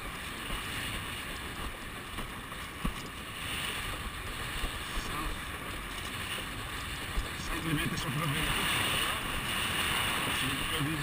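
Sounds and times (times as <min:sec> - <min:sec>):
water rushing under board: 0:00.0 - 0:11.0
wind on microphone: 0:00.0 - 0:11.0.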